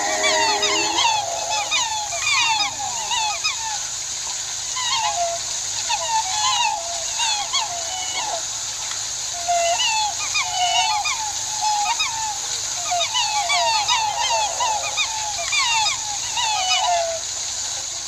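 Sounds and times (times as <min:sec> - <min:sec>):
swans calling: 0:00.0 - 0:03.8, 0:09.6 - 0:17.4
steady high hiss: 0:00.0 - 0:18.0.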